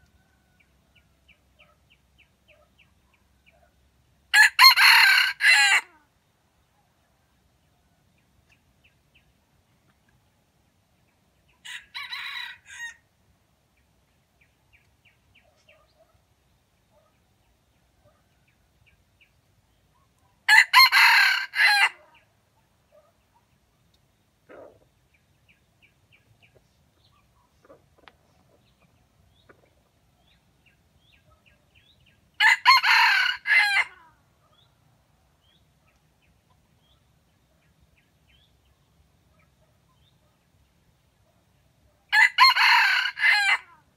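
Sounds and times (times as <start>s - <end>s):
rooster crowing: 4.4s - 6.0s, 11.6s - 13.0s, 20.5s - 22.0s, 32.4s - 34.0s, 42.1s - 43.8s.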